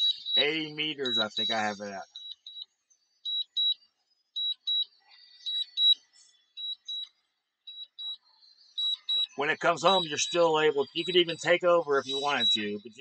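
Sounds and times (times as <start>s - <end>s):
high-pitched double beeps: 0.0s - 2.3s, 8.8s - 13.0s.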